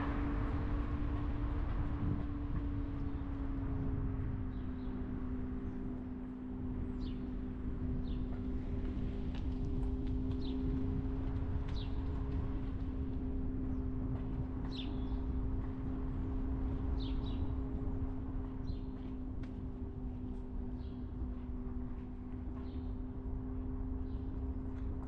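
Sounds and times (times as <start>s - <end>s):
car driving rumble: 0.0s - 25.0s.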